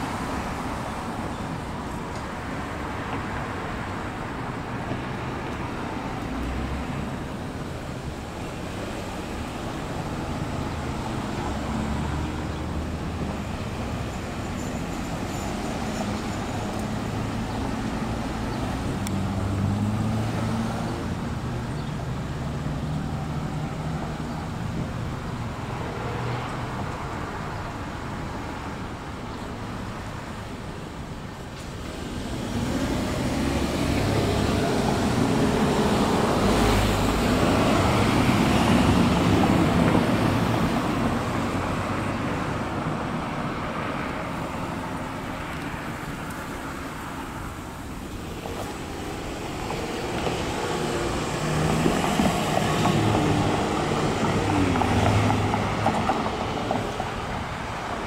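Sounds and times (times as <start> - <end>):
vehicle passing: 32.0 - 57.9.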